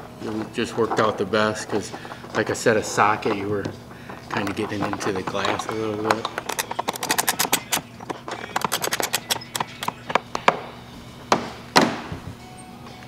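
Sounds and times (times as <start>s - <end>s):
ratcheting wrench clicking: 4.2s - 10.1s
loud knocks: 11.3s - 12.3s.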